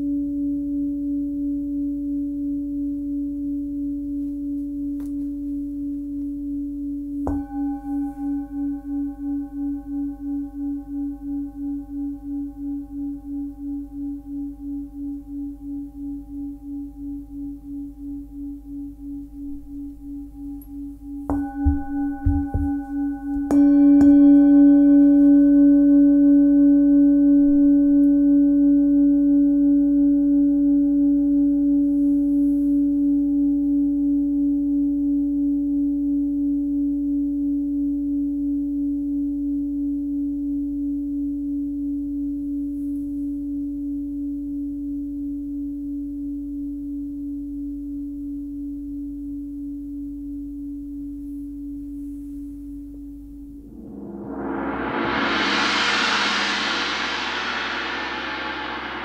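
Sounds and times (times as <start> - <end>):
singing bowl ringing: 0.0 - 59.0
soft knocks on bowl: 21.3 - 24.2.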